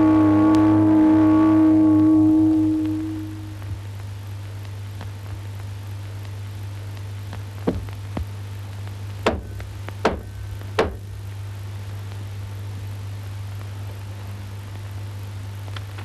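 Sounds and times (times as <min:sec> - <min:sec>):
steady low hum: 0:00.0 - 0:16.0
sharp knocks: 0:09.2 - 0:11.0.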